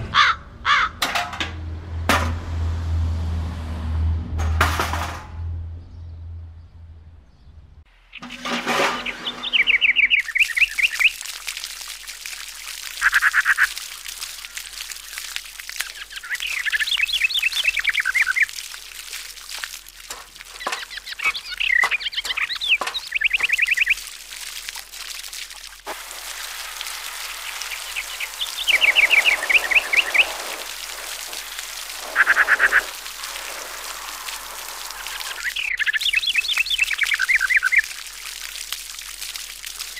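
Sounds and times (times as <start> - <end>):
loud bird calls: 0.1 - 1.0, 8.0 - 11.2, 15.8 - 18.6, 20.3 - 24.0, 27.1 - 37.9
songbirds trilling: 5.8 - 11.3, 12.9 - 24.1, 26.9 - 38.0.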